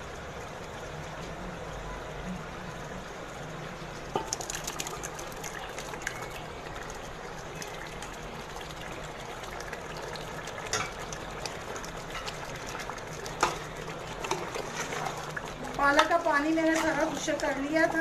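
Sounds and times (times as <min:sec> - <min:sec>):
puree slopping into a pot: 0:04.1 - 0:17.6.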